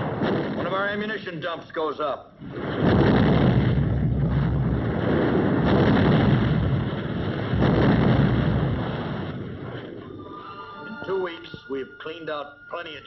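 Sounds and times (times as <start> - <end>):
rumble of explosions: 0.0 - 10.2.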